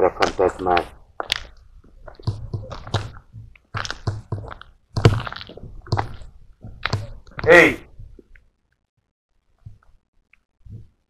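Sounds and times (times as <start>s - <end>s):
footsteps crunching on rubble: 0.1s - 8.2s.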